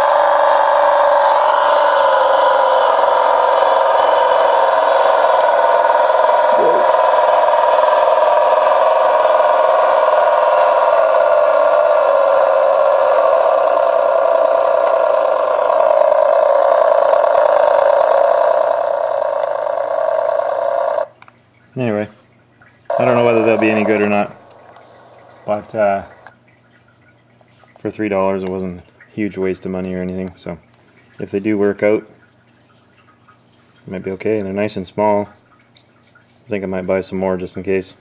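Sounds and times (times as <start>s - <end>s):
tinny truck engine sound from speaker: 0.0s - 21.2s, 22.9s - 26.4s.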